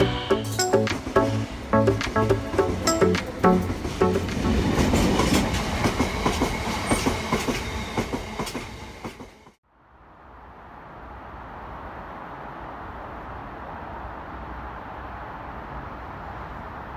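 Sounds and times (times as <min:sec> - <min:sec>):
train wheels clattering over rail joints: 0:03.2 - 0:09.6.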